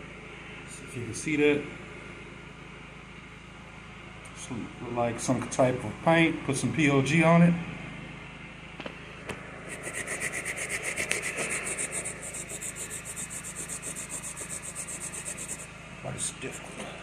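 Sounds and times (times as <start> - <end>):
brush scrubbing carpet: 9.7 - 15.7, 16.4 - 16.9.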